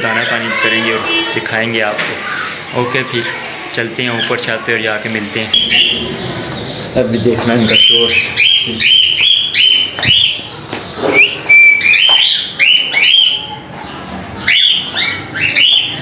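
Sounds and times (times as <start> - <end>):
birds whistling calls: 3.9 - 16.0.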